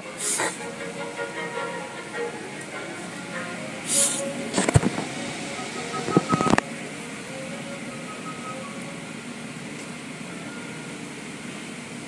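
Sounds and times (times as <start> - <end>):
water spray: 0.2 - 0.6, 3.8 - 6.0.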